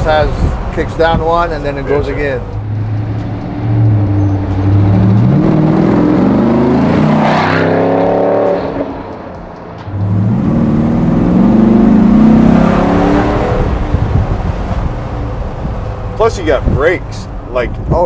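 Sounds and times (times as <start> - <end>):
engine accelerating hard: 2.6 - 15.0.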